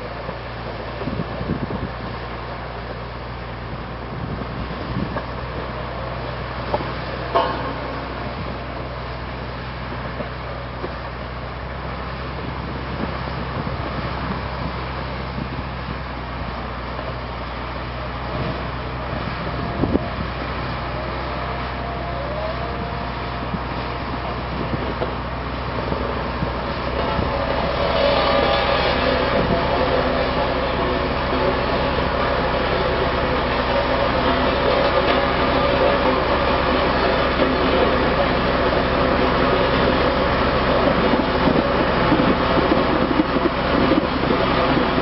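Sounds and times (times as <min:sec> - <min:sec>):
diesel engine under load: 0:00.0 - 0:45.0
sharp knocks: 0:06.7 - 0:08.0.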